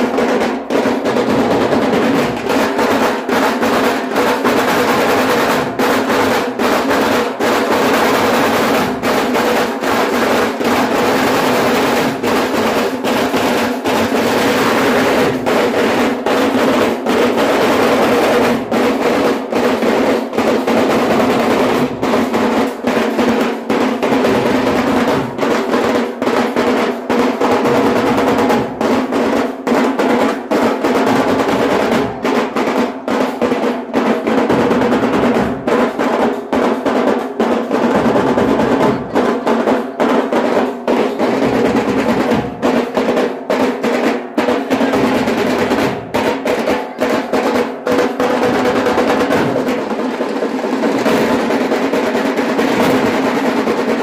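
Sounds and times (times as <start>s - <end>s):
rapid drumming and drum rolls: 0.0s - 54.0s
festival music: 30.5s - 50.1s.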